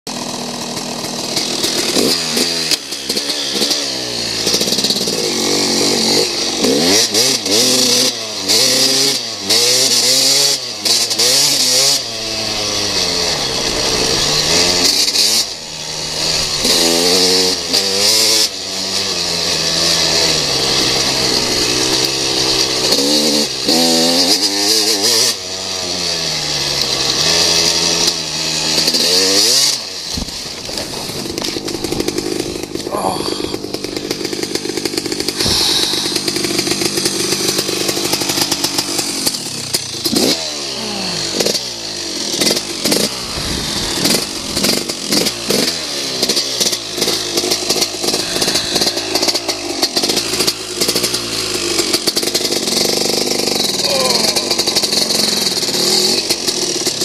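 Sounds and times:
dirt bike engine revving: 0:00.1 - 0:57.0
wind rushing over microphone: 0:43.2 - 0:44.6.

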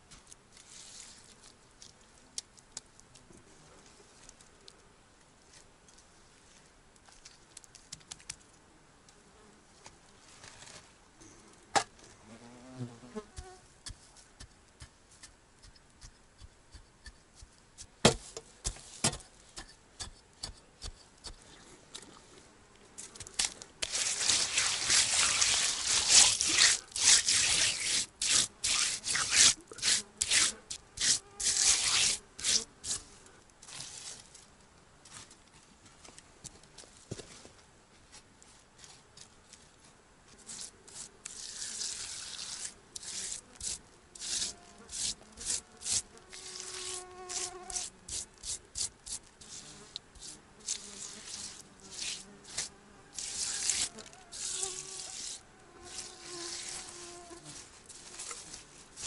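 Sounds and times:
hands scraping soil on metal: 0:00.0 - 0:02.0, 0:13.1 - 0:22.2, 0:23.0 - 0:34.5, 0:40.3 - 0:59.0
insect buzzing: 0:43.2 - 0:48.2, 0:49.4 - 0:58.6.

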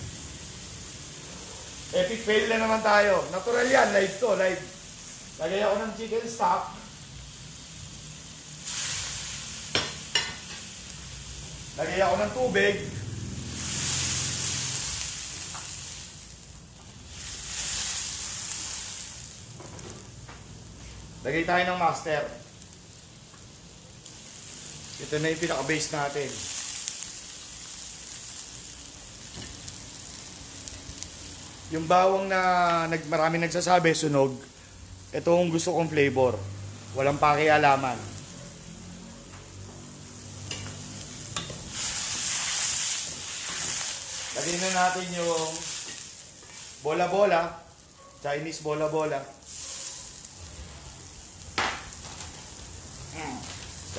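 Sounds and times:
water sizzling in hot wok: 0:00.0 - 0:53.9.

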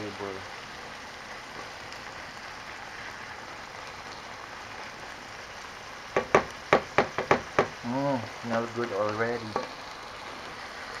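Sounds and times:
food sizzling in a frying pan: 0:00.0 - 0:11.0
wooden spatula knocking on pan: 0:06.2 - 0:07.8.

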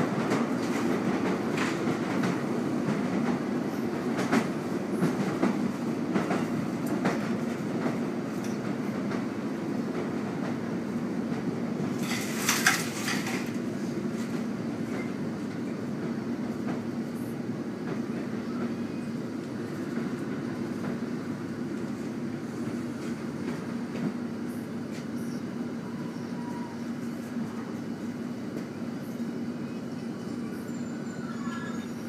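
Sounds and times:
train engine drone: 0:00.0 - 0:32.0
wheels clicking on rails: 0:11.3 - 0:15.8.

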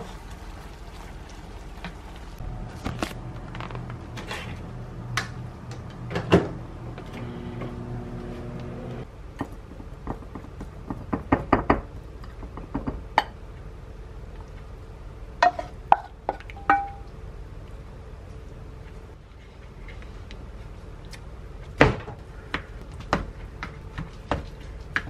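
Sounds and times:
microwave oven humming: 0:02.4 - 0:09.1.

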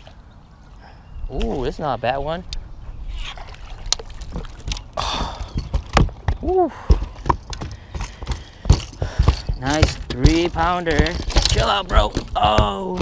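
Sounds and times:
knocks and thumps on boat deck: 0:04.3 - 0:13.0.

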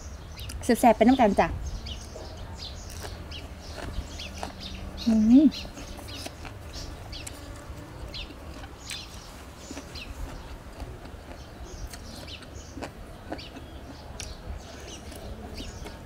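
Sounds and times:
small birds chirping: 0:00.0 - 0:16.0
chickens clucking: 0:02.0 - 0:16.0.

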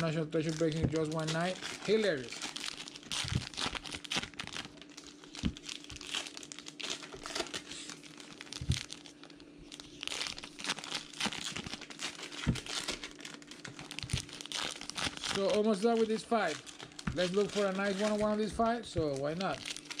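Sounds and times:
faint steady hum: 0:00.0 - 0:20.0
wrappers crinkling and rustling: 0:00.0 - 0:20.0.

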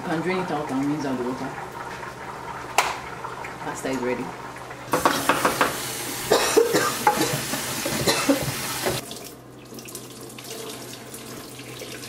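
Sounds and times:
tap running into pot: 0:02.8 - 0:03.0, 0:04.9 - 0:05.9, 0:07.0 - 0:09.0.

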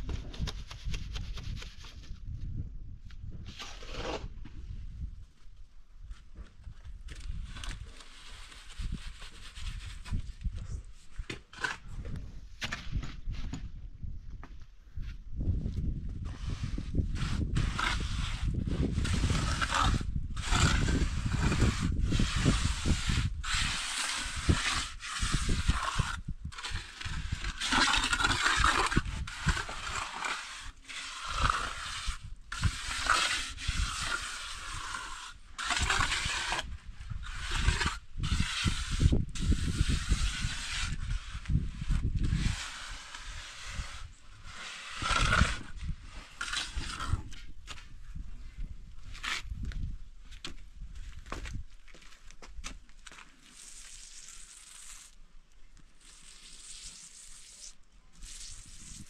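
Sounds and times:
trowel scraping wet mortar: 0:03.5 - 0:04.4, 0:07.1 - 0:12.9, 0:16.3 - 0:47.8, 0:53.3 - 0:59.0.

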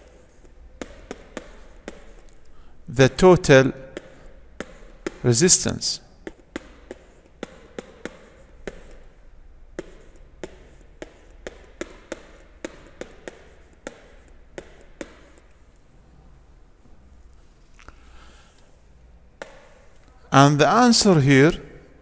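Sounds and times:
stylus clicking on tablet screen: 0:06.2 - 0:15.6.

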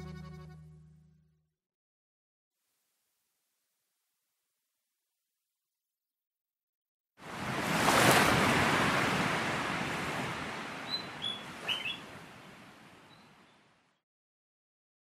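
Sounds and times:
ocean wave washing in and out: 0:07.2 - 0:13.4
short bird chirps: 0:10.9 - 0:12.0.

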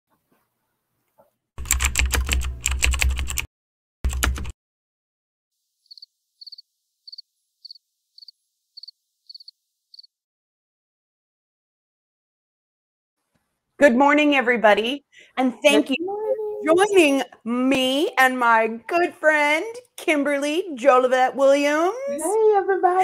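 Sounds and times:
keyboard typing clatter: 0:01.6 - 0:03.5, 0:04.1 - 0:04.6.

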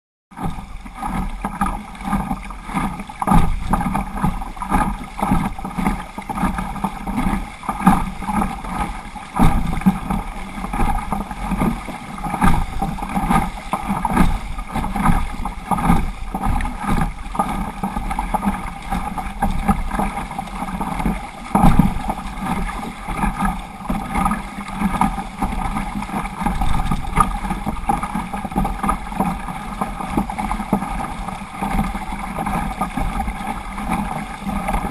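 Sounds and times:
water splashing against kayak: 0:00.3 - 0:34.9.

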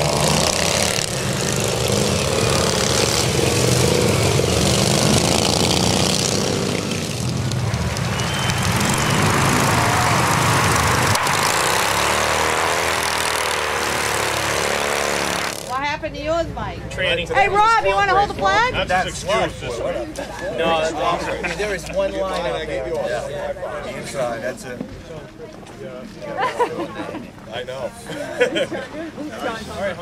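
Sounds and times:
racing lawn mower engines: 0:00.0 - 0:16.0.

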